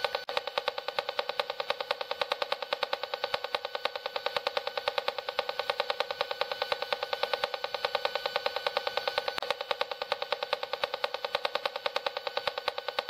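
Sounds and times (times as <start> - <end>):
rapid ticking buzz from meter: 0.0 - 13.0.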